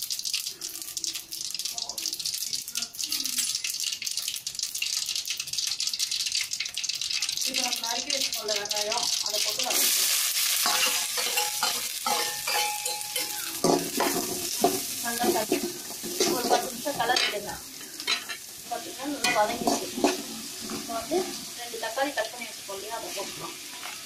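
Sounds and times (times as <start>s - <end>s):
food sizzling in hot oil: 0.0s - 24.0s
utensil scraping a pan: 10.6s - 18.4s, 19.2s - 21.3s, 23.0s - 24.0s.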